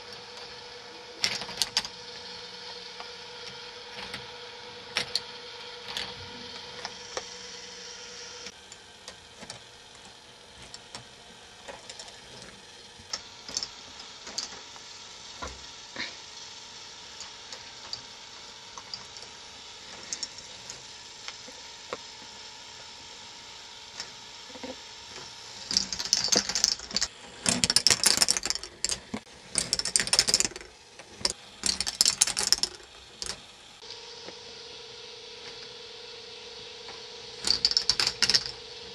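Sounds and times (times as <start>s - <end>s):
motor hum: 0.0s - 38.9s
plastic balls clicking on tracks: 1.2s - 2.4s, 3.9s - 7.4s, 8.5s - 16.1s, 17.1s - 22.1s, 25.1s - 33.5s, 37.4s - 38.6s
loud rattling clatter: 25.6s - 33.4s, 37.4s - 38.6s.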